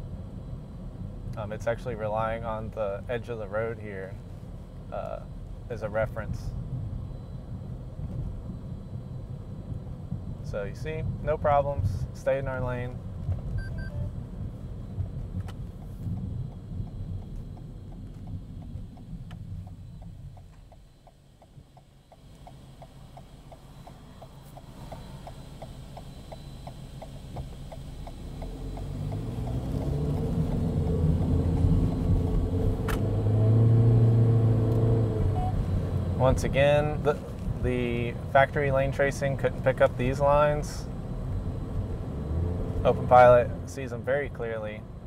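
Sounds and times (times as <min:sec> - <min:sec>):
car engine and road rumble: 0:00.0 - 0:45.0
light regular ticking: 0:14.4 - 0:32.6.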